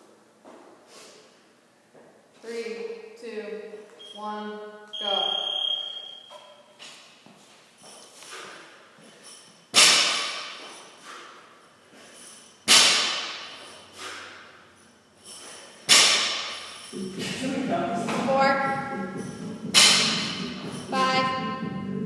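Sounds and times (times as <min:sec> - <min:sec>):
barbell thudding on rubber floor: 0:12.6 - 0:13.7, 0:15.9 - 0:16.7, 0:19.7 - 0:20.8
bar and plates knocking: 0:19.2 - 0:21.0.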